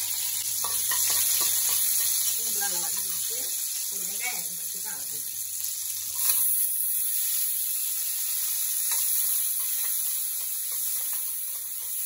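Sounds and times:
onions sizzling in hot oil: 0:00.0 - 0:12.0
ladle stirring in metal pan: 0:00.6 - 0:02.3, 0:08.9 - 0:12.0.

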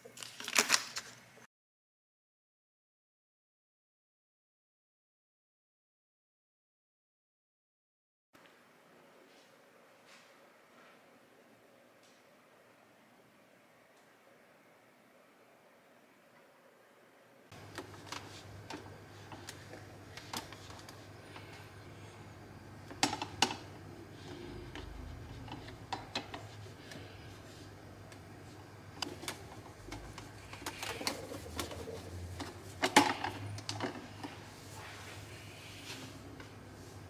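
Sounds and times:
low steady hum: 0:08.4 - 0:37.0.

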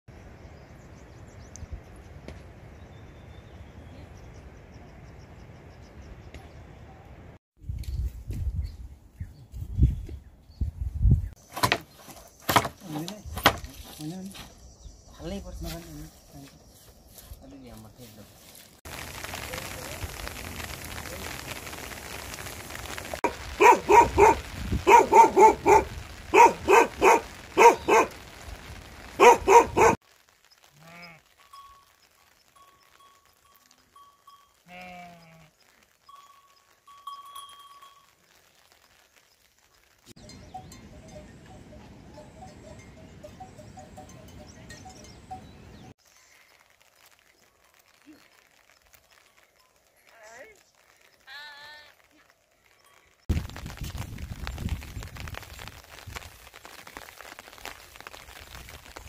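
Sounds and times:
rain patter: 0:18.8 - 0:40.4, 0:45.9 - 0:59.0
dog barking: 0:23.2 - 0:28.2, 0:29.2 - 0:30.0.

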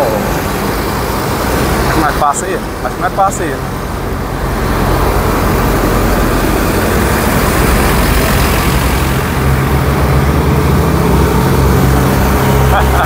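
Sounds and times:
bus diesel engine hum: 0:00.0 - 0:13.0
road noise rushing: 0:00.0 - 0:13.0.

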